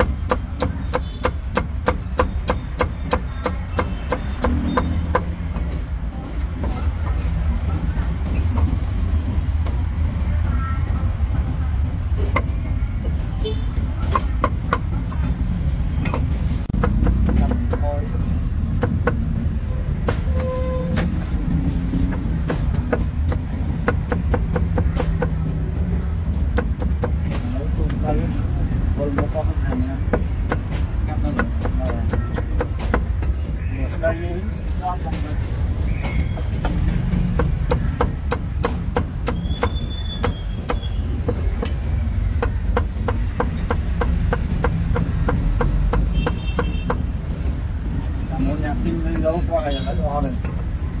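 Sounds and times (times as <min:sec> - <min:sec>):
street traffic rumble: 0:00.0 - 0:51.0
sharp knocks and clacks: 0:16.0 - 0:18.1, 0:36.1 - 0:47.1
cleaver chopping on wooden block: 0:36.6 - 0:41.8, 0:42.4 - 0:47.1.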